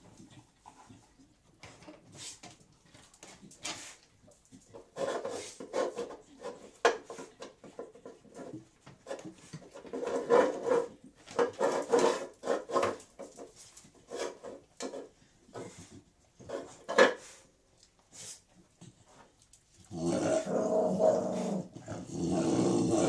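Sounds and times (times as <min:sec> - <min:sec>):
dogs scraping and sniffing: 0:00.1 - 0:23.0.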